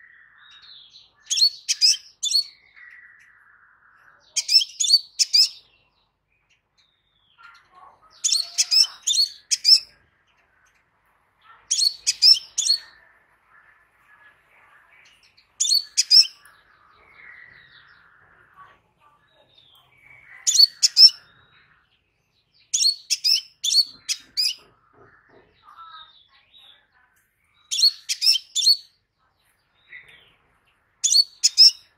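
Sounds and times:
bird chirping sharply: 0:00.0 - 0:03.4, 0:04.2 - 0:05.8, 0:08.1 - 0:10.0, 0:11.7 - 0:13.0, 0:15.2 - 0:18.1, 0:19.5 - 0:21.6, 0:22.6 - 0:24.7, 0:27.6 - 0:29.0, 0:31.0 - 0:31.9.

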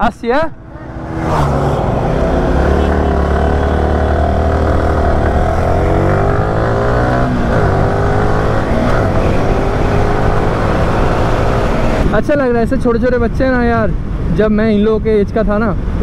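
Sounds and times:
motorcycle engine accelerating: 0:00.7 - 0:12.2.

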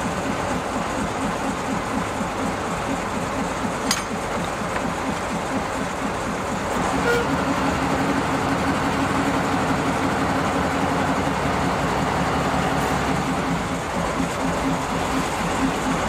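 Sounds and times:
diesel locomotive engine running: 0:00.0 - 0:16.0.

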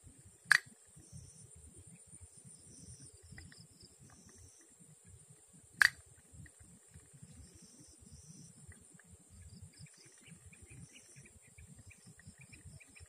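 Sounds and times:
insects chirring: 0:00.0 - 0:13.0
sharp loud clicks: 0:00.5 - 0:00.8, 0:05.8 - 0:06.0.

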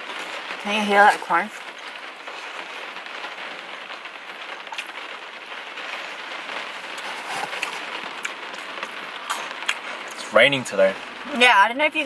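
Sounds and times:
rain on car roof: 0:00.0 - 0:12.0
person chewing crunchy food: 0:06.7 - 0:10.2.

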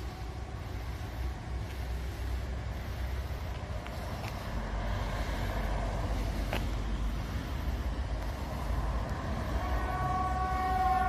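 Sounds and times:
passing car traffic: 0:00.0 - 0:11.0
warning siren steady tone: 0:07.4 - 0:11.0.

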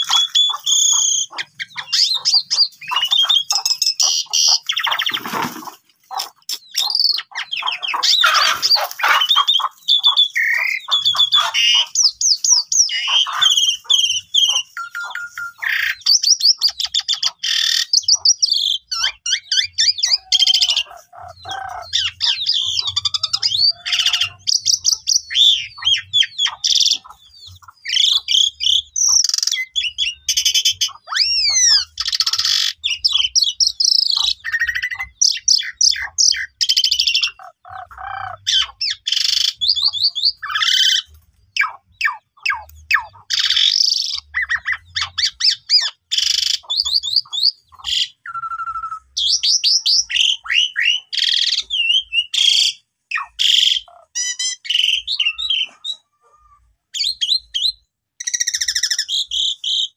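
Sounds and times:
starling singing: 0:00.0 - 0:59.9.

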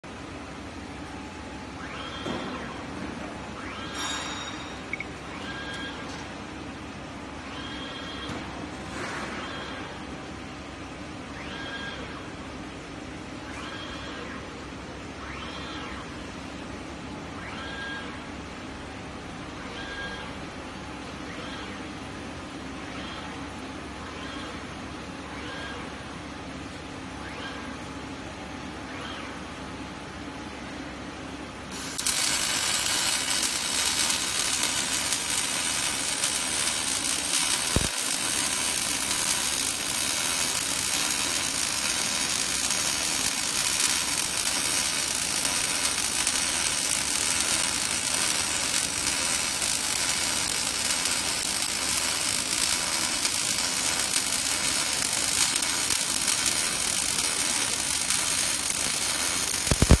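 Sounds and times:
laser welding hissing crackle: 0:31.7 - 1:00.0.

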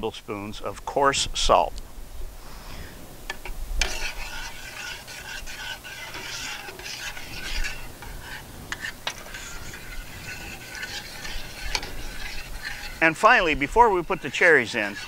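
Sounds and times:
spoon scraping a steel pot: 0:03.4 - 0:15.0.

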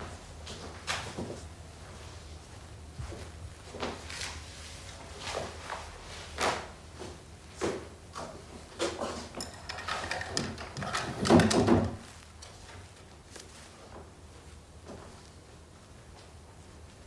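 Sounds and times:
footsteps on tiled floor: 0:00.0 - 0:09.4
cabinet opening rattle: 0:09.4 - 0:12.1.

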